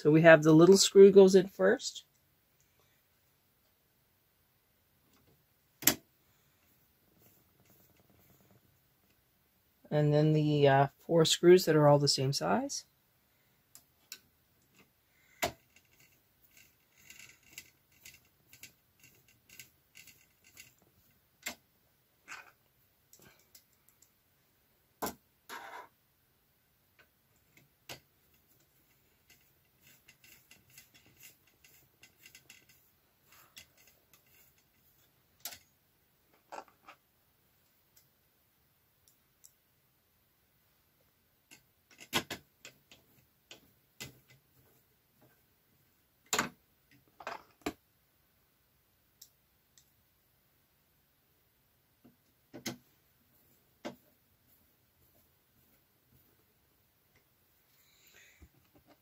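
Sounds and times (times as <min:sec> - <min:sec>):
small metal and plastic clicks: 0:13.7 - 0:20.8, 0:35.4 - 0:35.7, 0:41.5 - 0:44.4.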